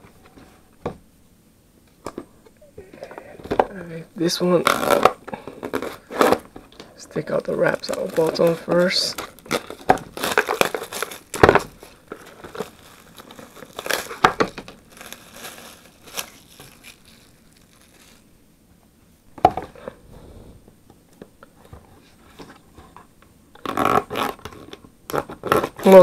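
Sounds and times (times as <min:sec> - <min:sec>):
plastic wrap crinkling: 0:04.3 - 0:18.4.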